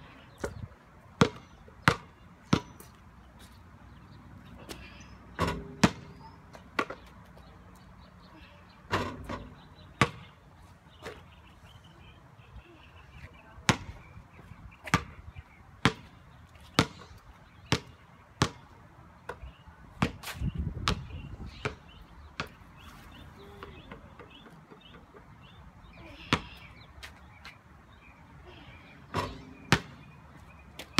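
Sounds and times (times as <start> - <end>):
basketball bouncing on concrete: 1.2 - 3.0, 4.6 - 7.4, 8.9 - 10.4, 13.6 - 14.0, 14.8 - 15.2, 15.8 - 17.1, 17.7 - 18.7, 19.3 - 22.8, 26.2 - 26.6, 29.1 - 30.1.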